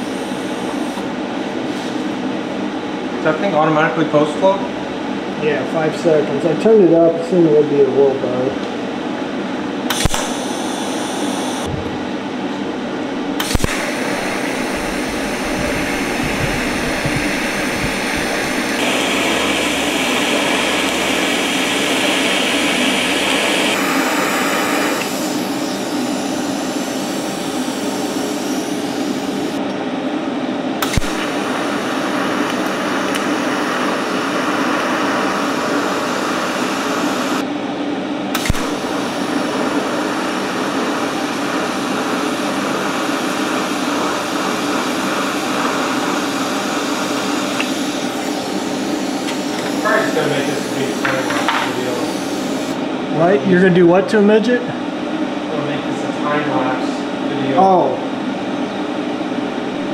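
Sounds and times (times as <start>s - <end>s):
arc welding hiss and hum: 0.0s - 1.2s, 9.8s - 29.7s, 30.8s - 37.5s, 38.4s - 52.9s
sharp clicks: 9.9s - 10.3s.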